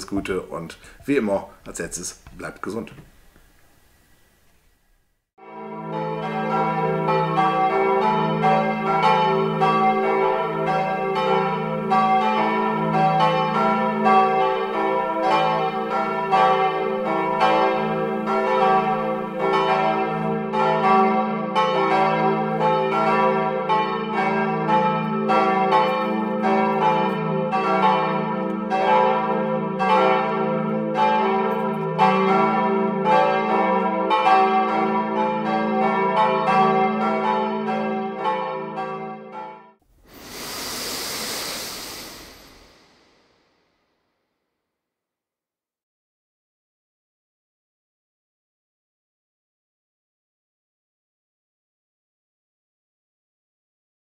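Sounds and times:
church bells pealing: 0:05.4 - 0:39.8.

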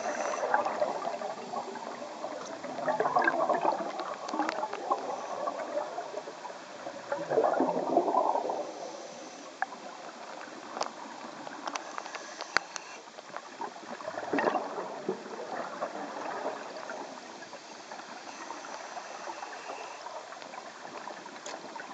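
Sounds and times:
steady underwater hiss: 0:00.0 - 0:21.9
air bubbling underwater: 0:00.4 - 0:06.1, 0:07.1 - 0:08.6.

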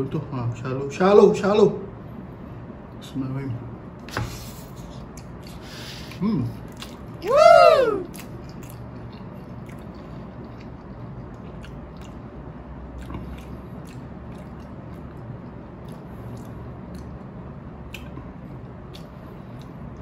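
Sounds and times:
person chewing noodles: 0:04.9 - 0:07.3, 0:08.0 - 0:20.0.

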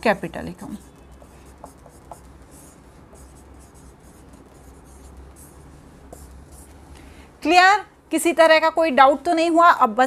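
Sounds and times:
marker writing on whiteboard: 0:00.5 - 0:06.9.

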